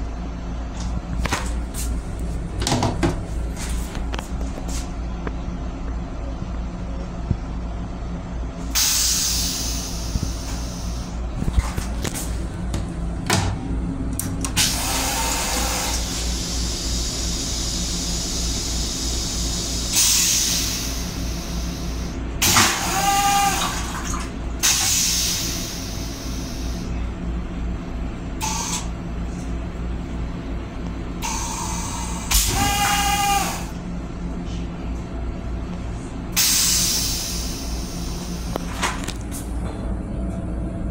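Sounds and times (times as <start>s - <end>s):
steady low hum: 0.0s - 40.9s
toilet flush water rushing: 14.6s - 19.0s, 19.8s - 26.8s.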